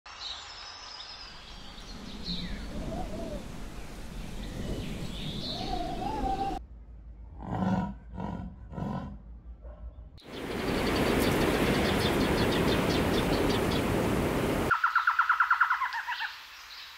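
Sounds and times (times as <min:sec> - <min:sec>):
birds chirping: 0:00.7 - 0:06.6, 0:10.2 - 0:16.9
lynx whining calls: 0:01.5 - 0:06.6.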